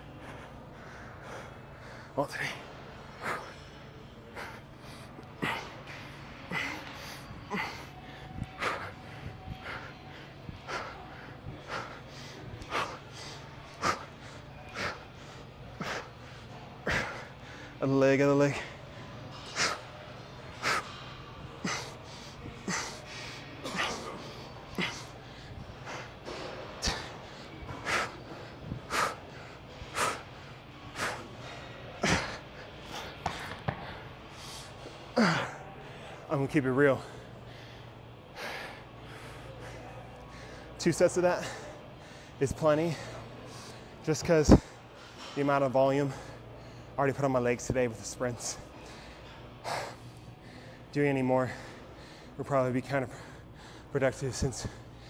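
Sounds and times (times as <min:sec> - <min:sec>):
man breathing hard: 0:00.1 - 0:17.8, 0:18.5 - 0:36.2, 0:48.7 - 0:52.4, 0:53.0 - 0:53.9.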